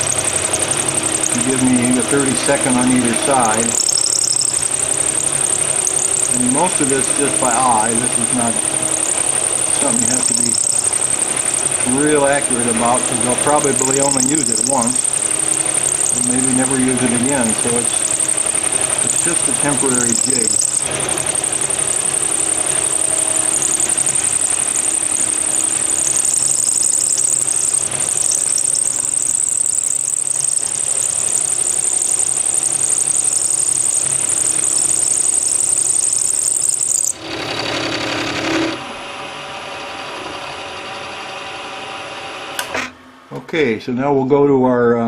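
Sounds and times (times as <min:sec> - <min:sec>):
milling machine cutting metal: 0:00.0 - 0:38.8
high-pitched machine whine: 0:00.0 - 0:43.3.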